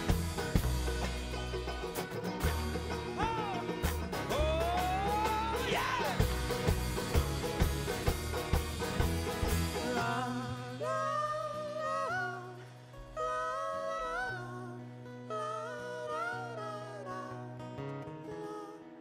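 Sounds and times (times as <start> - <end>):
acoustic string band playing: 0.0 - 18.0
person singing long notes: 9.8 - 19.0.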